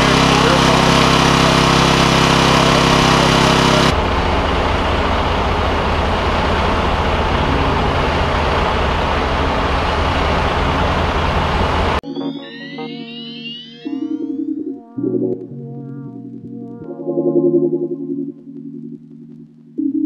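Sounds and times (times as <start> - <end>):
vehicle engines idling: 0.0 - 12.0.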